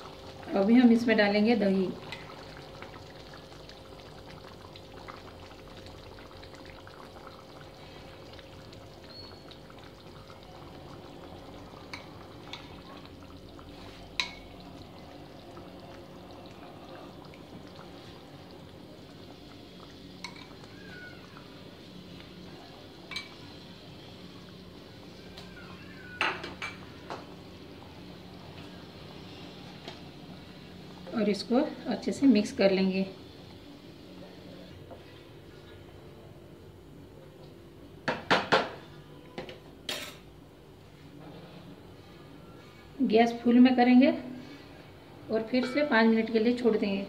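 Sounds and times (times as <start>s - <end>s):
curry simmering in a pan: 0.0s - 31.2s.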